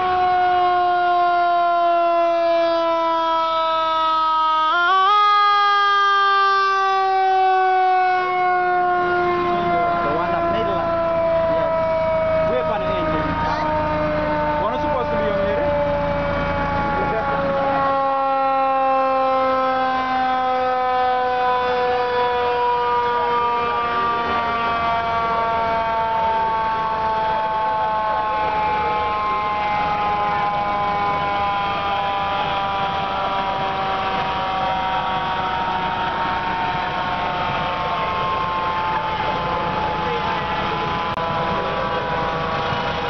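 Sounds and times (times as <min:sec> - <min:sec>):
siren falling tone: 0:00.0 - 0:43.0
vehicle engines rumbling: 0:00.0 - 0:43.0.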